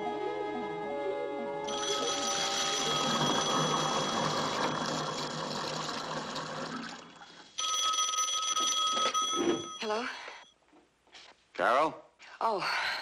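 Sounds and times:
telephone bell ringing: 1.7 - 6.2, 7.5 - 10.4
garbage disposal grinding: 1.7 - 7.5.

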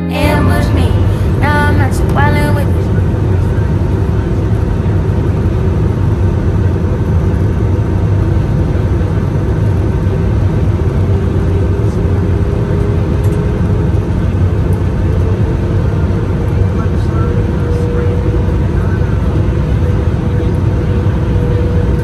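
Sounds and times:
faint constant hum: 0.0 - 12.9.

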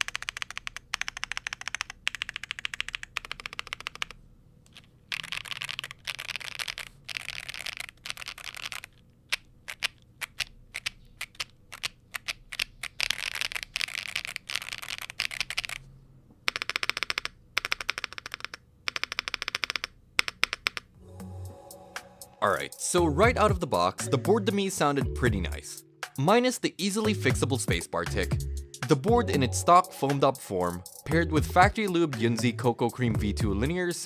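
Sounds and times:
keyboard typing clacks: 0.0 - 15.8, 16.5 - 20.9.

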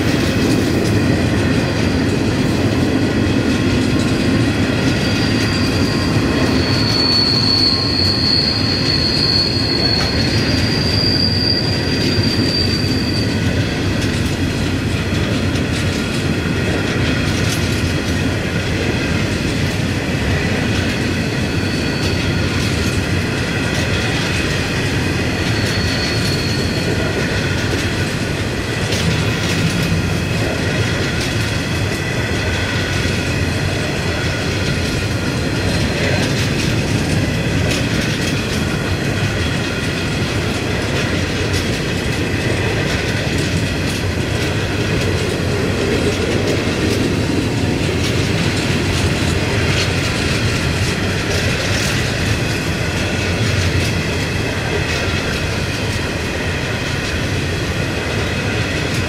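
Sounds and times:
high-pitched wheel squeal: 4.8 - 13.8, 21.0 - 23.0, 25.3 - 27.1.

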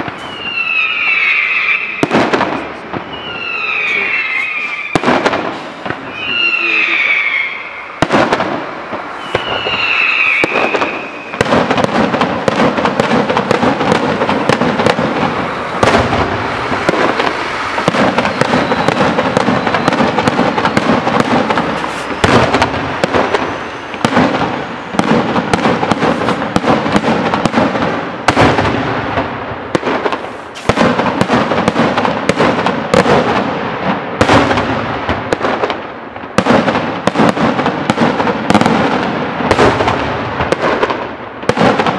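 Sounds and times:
fireworks whistles: 0.0 - 33.5
fireworks bangs and crackling: 0.0 - 41.9
loud fireworks booms: 0.0 - 41.9.

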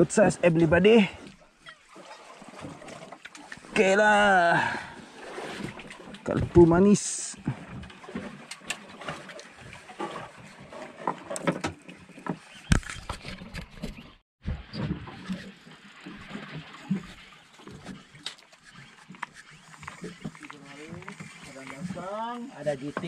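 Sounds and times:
knocks and clicks on boat: 7.5 - 23.0.

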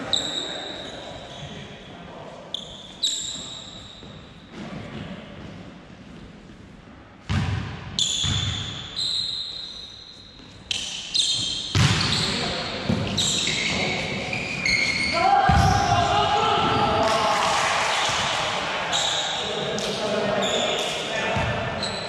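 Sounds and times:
volleyball thuds with echo: 7.2 - 8.7, 11.7 - 13.2, 15.4 - 18.4.

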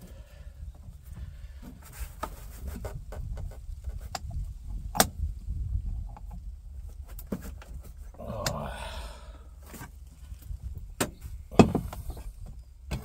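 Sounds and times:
gear shifter clicks and clunks: 2.9 - 5.2, 10.9 - 13.0.

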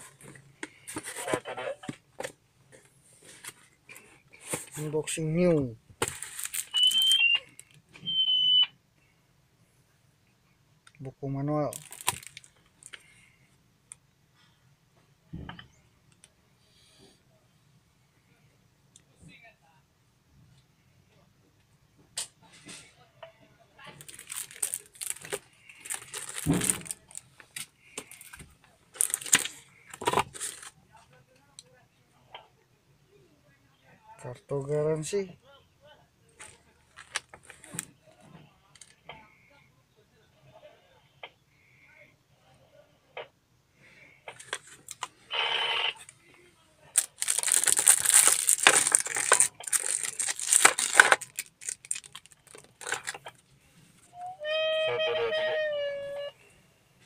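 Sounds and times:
paper rustling: 0.0 - 2.3, 6.0 - 7.2, 24.0 - 30.8, 46.9 - 53.3
plastic wrapping crinkling: 6.0 - 7.8, 11.7 - 13.1, 23.9 - 30.8, 36.4 - 37.9, 46.9 - 53.4.

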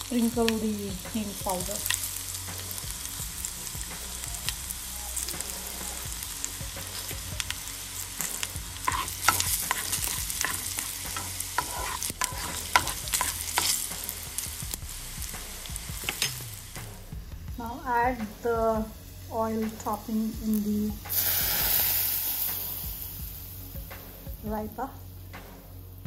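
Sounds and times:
oil sizzling in a pan: 0.0 - 26.0
spoon stirring: 8.3 - 14.5.

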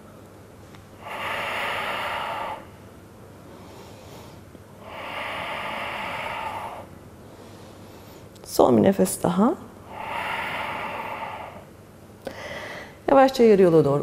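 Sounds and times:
woman breathing deeply: 1.0 - 8.4, 9.8 - 13.0.

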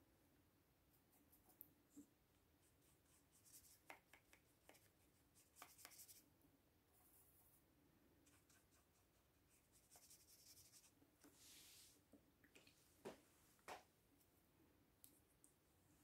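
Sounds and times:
brush scratching on paper: 2.6 - 6.2, 8.3 - 11.9
soft hiss: 8.4 - 16.0.

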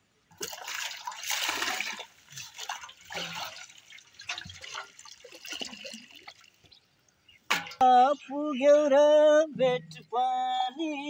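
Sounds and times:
water splashing and pouring: 0.3 - 6.8.

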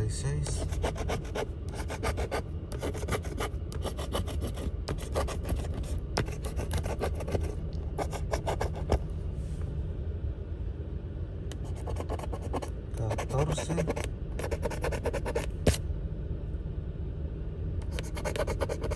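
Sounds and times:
coin scratching a ticket: 0.5 - 9.0, 11.7 - 15.5, 17.8 - 18.9.

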